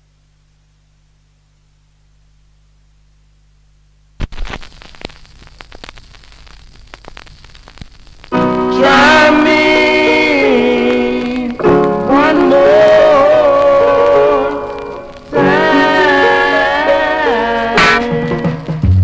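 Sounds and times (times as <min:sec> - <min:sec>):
stylus dropping on vinyl record: 0:04.1 - 0:19.0
vinyl surface crackle and clicks: 0:04.2 - 0:18.8
rocksteady soul band playing: 0:08.3 - 0:19.0.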